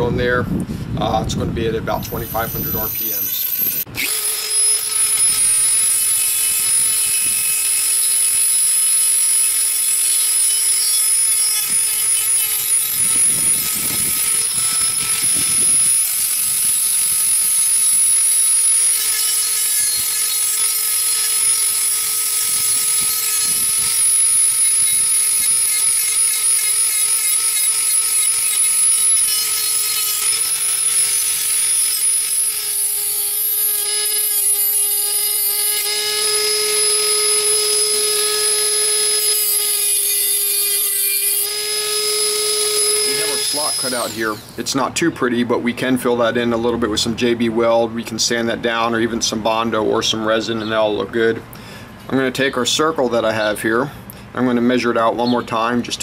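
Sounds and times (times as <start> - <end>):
rotary tool grinding metal: 1.9 - 44.7.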